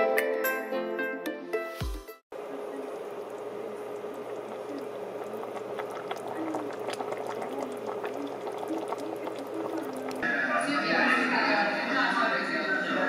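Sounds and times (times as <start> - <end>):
stew bubbling in a pot: 2.3 - 10.2
steady hum: 2.4 - 10.4.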